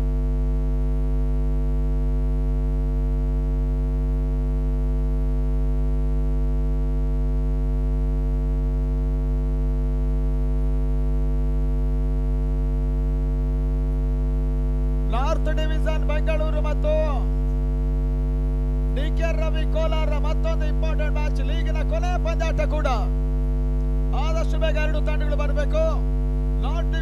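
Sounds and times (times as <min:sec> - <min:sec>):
electrical mains hum: 0:13.4 - 0:27.0.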